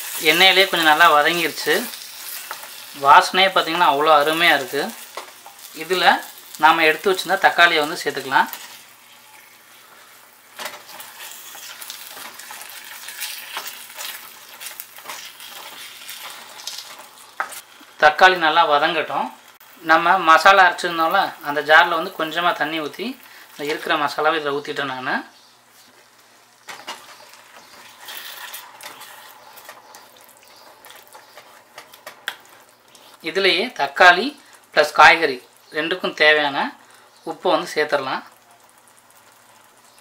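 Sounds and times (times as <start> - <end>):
food sizzling in oil: 0.0 - 40.0
wooden spatula scraping pan: 26.7 - 31.9
gravy simmering in a pan: 38.2 - 40.0.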